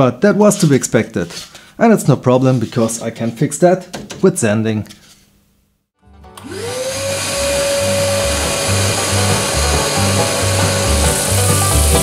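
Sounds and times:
background music: 6.0 - 12.0
drill press motor whine: 6.4 - 12.0.

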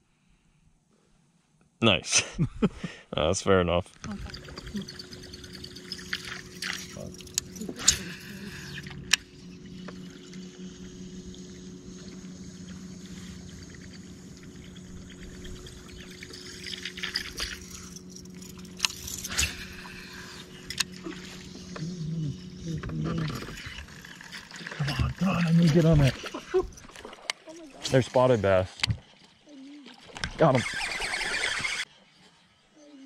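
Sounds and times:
electric trolling motor hum: 4.0 - 32.8
fishing reel clicks: 4.1 - 10.2, 15.0 - 21.0, 30.5 - 31.9.

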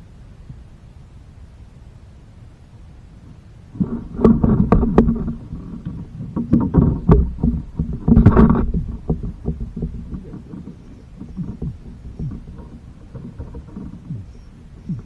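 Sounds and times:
knocks against plastic kayak hull: 6.4 - 10.7.

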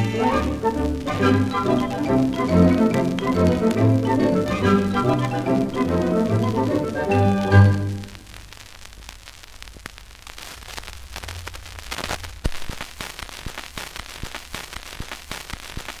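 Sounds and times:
record hiss and crackle: 0.0 - 16.0
sharp record clicks: 0.4 - 16.0.

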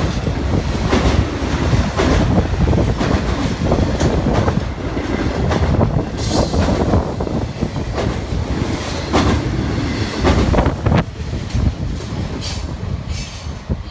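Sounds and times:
train wheels rumbling on rail: 0.0 - 13.9.

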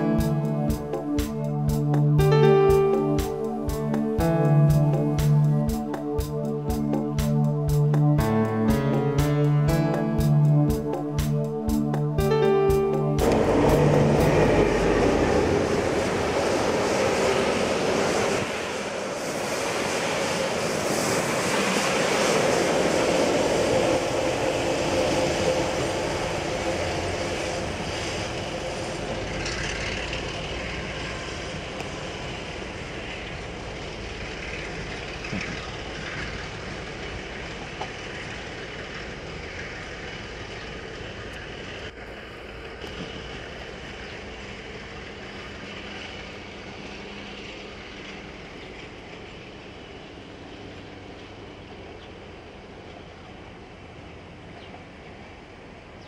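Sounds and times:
diesel train passing: 0.0 - 56.0
carriages rolling over rails: 24.1 - 42.0.

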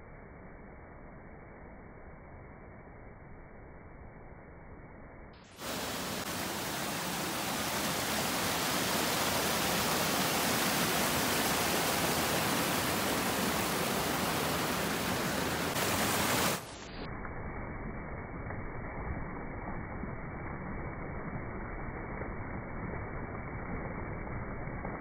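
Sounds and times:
water rushing over rocks: 5.6 - 17.0.

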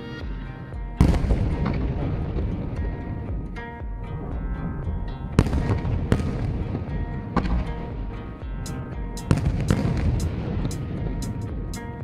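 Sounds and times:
background music: 0.0 - 12.0
fireworks bursting: 8.7 - 12.0.

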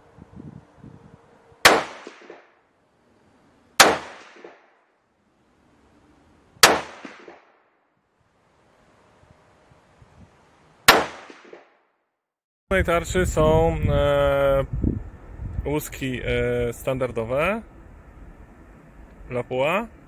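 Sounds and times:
rifle shots echoing: 1.6 - 2.6, 3.8 - 4.8, 6.6 - 7.6, 10.9 - 11.8.

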